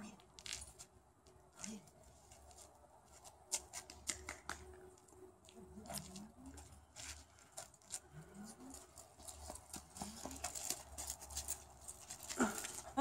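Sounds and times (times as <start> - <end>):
dog scrabbling on concrete: 5.9 - 13.0.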